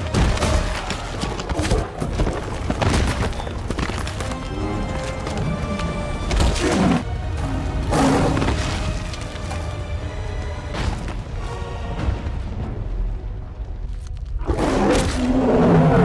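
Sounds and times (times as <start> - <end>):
hooves pounding on rocky ground: 0.0 - 12.4
film score music: 0.0 - 16.0.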